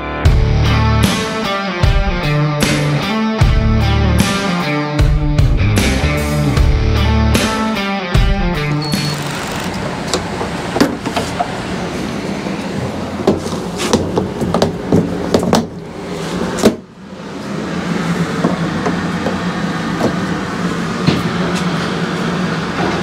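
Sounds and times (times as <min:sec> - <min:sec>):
steady mechanical hum: 0:08.5 - 0:23.0.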